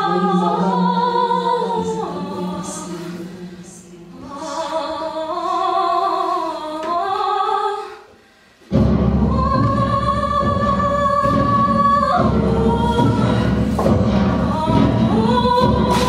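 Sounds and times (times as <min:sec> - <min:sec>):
choir singing held notes: 0:00.0 - 0:07.8.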